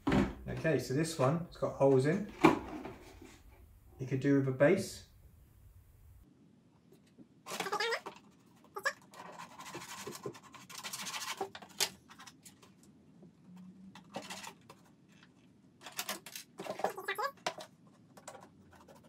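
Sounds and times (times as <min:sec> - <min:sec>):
knife scratching plastic: 0:07.5 - 0:12.6
plastic scraping and rubbing: 0:07.5 - 0:19.0.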